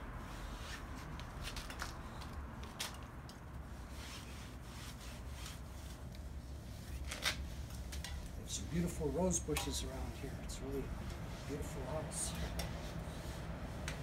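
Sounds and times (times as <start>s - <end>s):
cloth rubbing on screen mesh: 3.6s - 14.0s.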